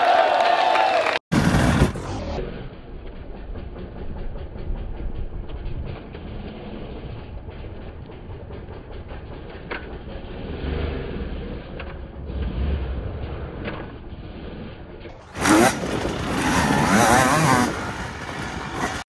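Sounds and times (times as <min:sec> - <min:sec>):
dirt bike engine blipping: 0:15.2 - 0:19.0.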